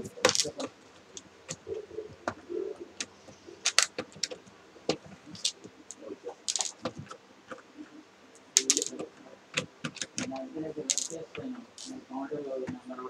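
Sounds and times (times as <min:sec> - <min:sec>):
jangling rattle: 0:03.0 - 0:07.2.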